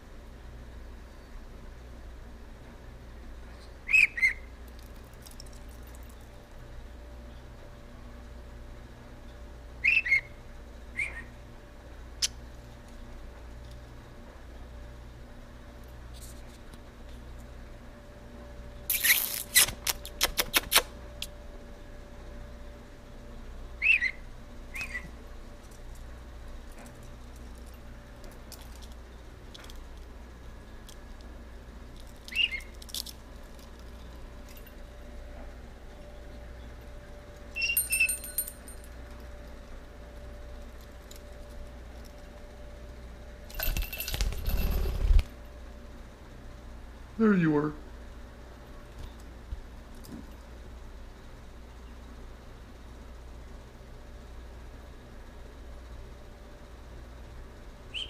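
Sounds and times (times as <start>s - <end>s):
bird chirps: 3.9s - 4.5s, 9.8s - 10.4s, 23.8s - 25.1s, 32.3s - 32.8s, 37.6s - 38.2s
small metal bell jingling: 37.6s - 39.0s, 43.5s - 44.8s.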